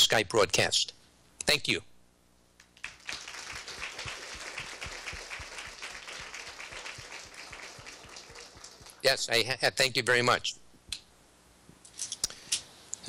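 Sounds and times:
audience applauding: 0:02.7 - 0:09.1.

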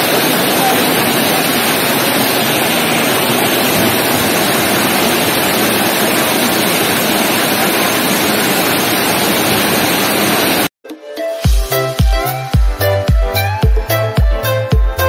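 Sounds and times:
water rushing over spillway: 0:00.0 - 0:10.7.

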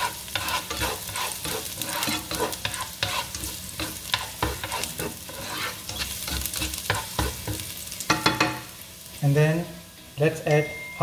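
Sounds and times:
spatula scraping and tapping pan: 0:00.0 - 0:08.7
garlic sizzling in oil: 0:00.0 - 0:11.0.

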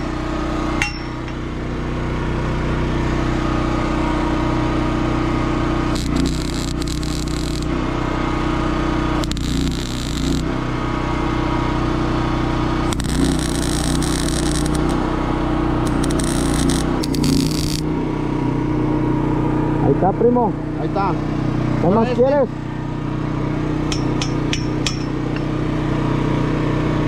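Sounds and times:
engine droning: 0:00.2 - 0:27.0
welding arc crackling and hissing: 0:05.9 - 0:07.8, 0:09.2 - 0:10.5, 0:12.9 - 0:15.2, 0:15.8 - 0:17.9.

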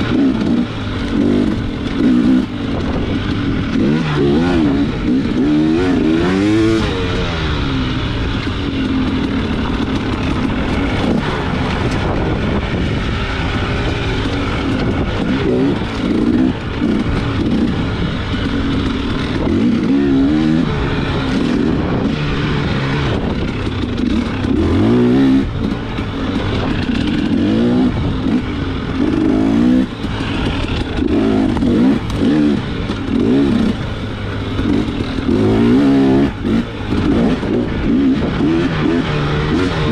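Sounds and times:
constant rush of noise: 0:00.0 - 0:39.9
motorcycle engine revving: 0:00.0 - 0:39.9.

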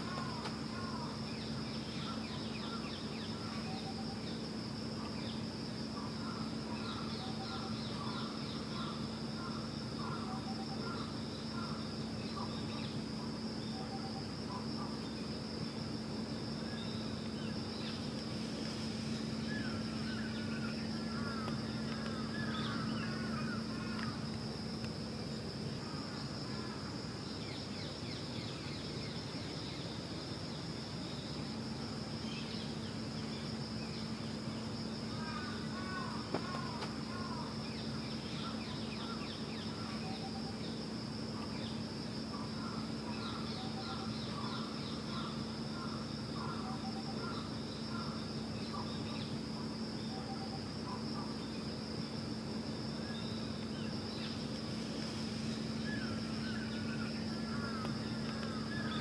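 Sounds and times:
constant high whine: 0:00.0 - 0:59.0.

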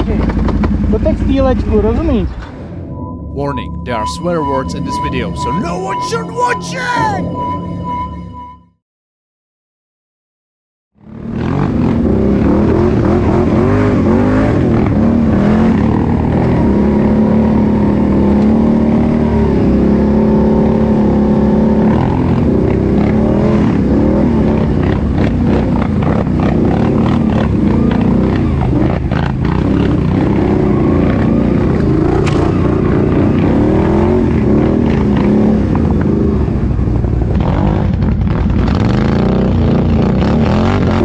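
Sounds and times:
atv engine revving: 0:11.1 - 0:41.0.

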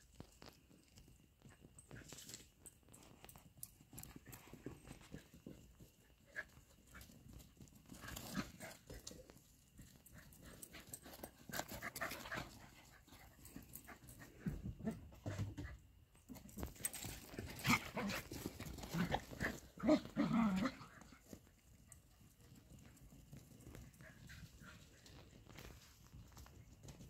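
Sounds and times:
dogs panting: 0:03.5 - 0:15.6.

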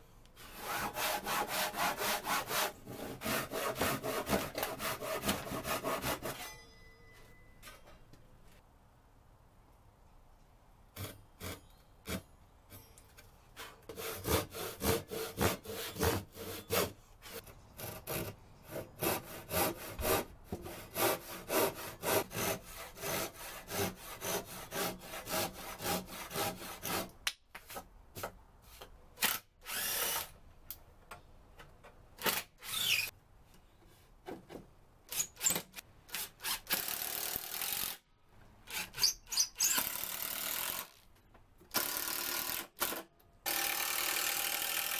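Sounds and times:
hand saw cutting wood: 0:00.4 - 0:06.6, 0:13.6 - 0:27.8
cordless drill driving screws: 0:29.2 - 0:30.3, 0:32.2 - 0:33.1.

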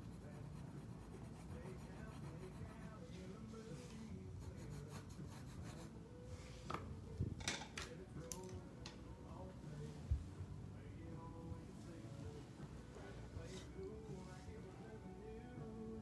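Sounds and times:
pen scratching on paper: 0:00.0 - 0:03.0
tools clicking and tapping: 0:07.4 - 0:09.0.

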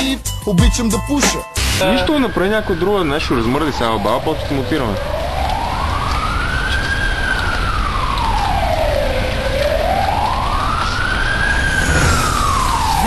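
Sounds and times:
siren wailing: 0:01.8 - 0:13.0
steady low rumble: 0:11.5 - 0:13.0.

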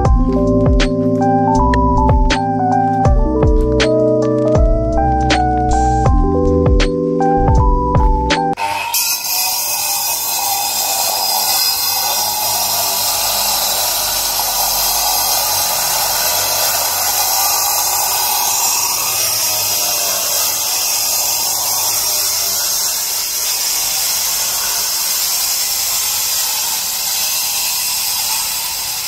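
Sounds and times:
power tool cutting stone: 0:08.5 - 0:29.0.

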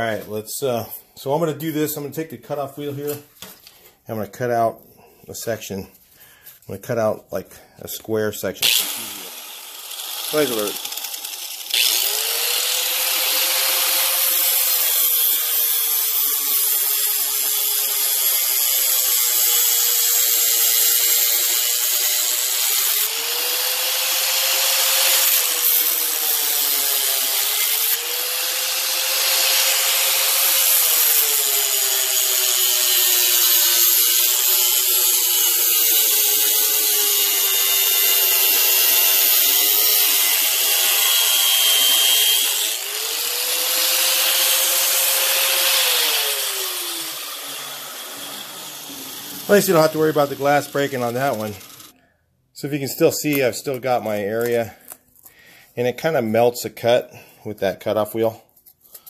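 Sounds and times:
angle grinder cutting plastic: 0:08.6 - 0:52.0.

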